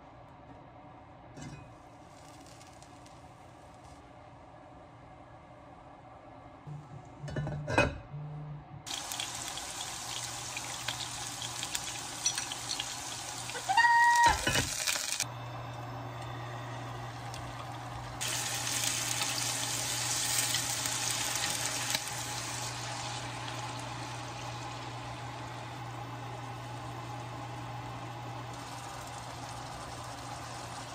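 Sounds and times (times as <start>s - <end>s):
rice and mushrooms hissing in a pot: 8.9s - 15.2s, 18.2s - 25.4s, 28.2s - 30.9s.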